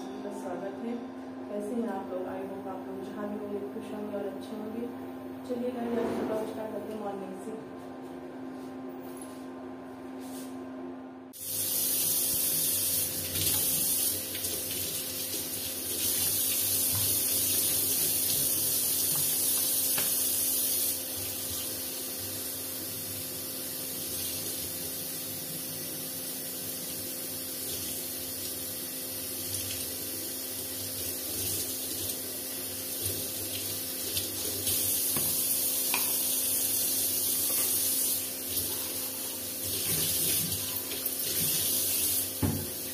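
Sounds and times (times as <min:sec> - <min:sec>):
tap water splashing into sink: 0:13.1 - 0:20.2, 0:39.7 - 0:42.9.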